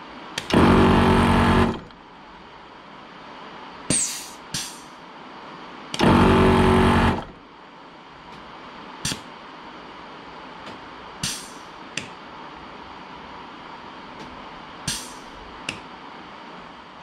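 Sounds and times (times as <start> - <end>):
air compressor buzzing: 0.4 - 1.9, 6.0 - 7.3
short air hisses: 3.9 - 4.9, 11.2 - 11.6, 14.9 - 15.3.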